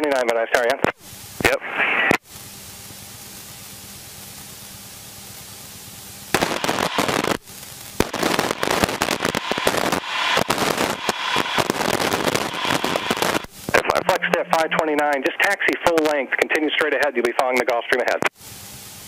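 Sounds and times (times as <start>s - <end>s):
radio hiss: 0.0s - 2.5s, 6.3s - 18.6s
crackling radio static bursts: 0.1s - 2.6s, 6.3s - 18.4s.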